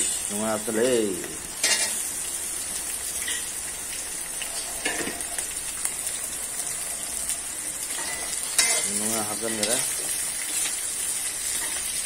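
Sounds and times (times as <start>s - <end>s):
food sizzling in hot oil: 0.0s - 12.0s
metal scraping wok: 1.6s - 2.1s, 4.6s - 5.3s, 7.8s - 10.8s, 11.4s - 12.0s.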